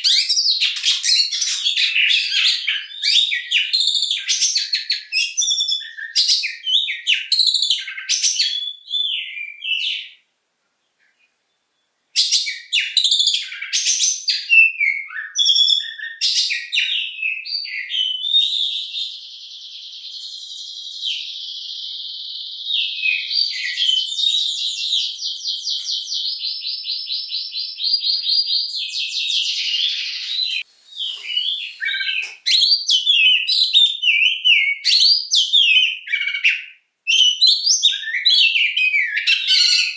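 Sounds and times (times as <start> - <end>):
magpie-robin singing whistled phrases: 0.0 - 10.2, 11.5 - 39.9.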